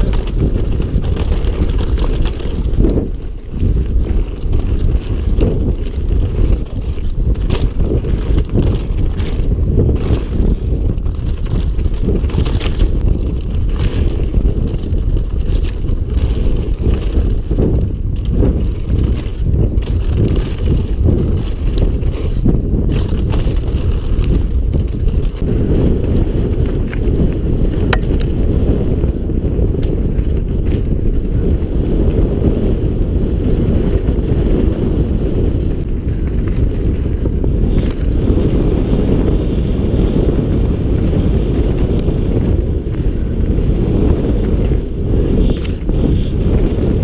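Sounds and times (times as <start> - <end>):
bike knocks and rattles: 0.0 - 47.0
wind buffeting microphone: 0.0 - 47.0.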